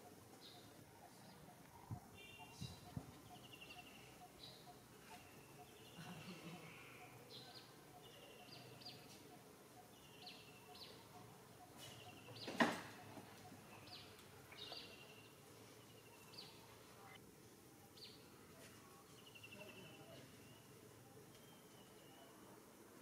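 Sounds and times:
background hiss: 0.0 - 23.0.

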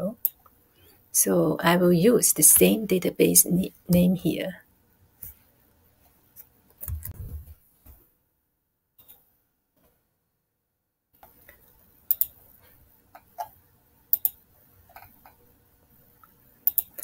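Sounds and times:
computer mouse clicking: 6.8 - 7.4, 12.1 - 12.4, 14.1 - 15.4, 16.2 - 17.0.

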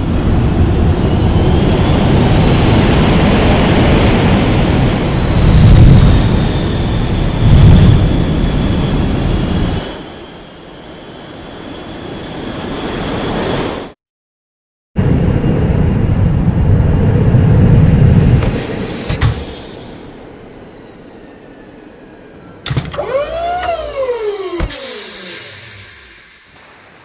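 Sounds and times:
rocket engine rumble and roar: 0.0 - 13.9, 15.0 - 27.0
faint falling whine: 15.0 - 27.0.

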